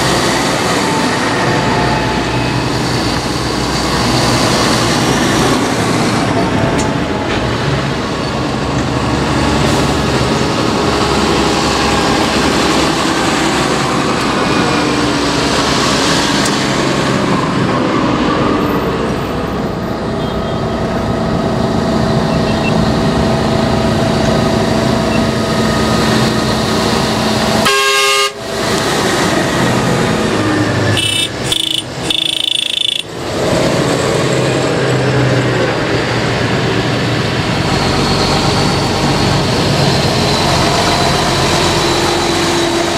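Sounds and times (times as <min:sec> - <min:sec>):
tractor diesel engines: 0:00.0 - 0:42.9
vehicle horn toots: 0:27.6 - 0:28.4, 0:31.0 - 0:33.1.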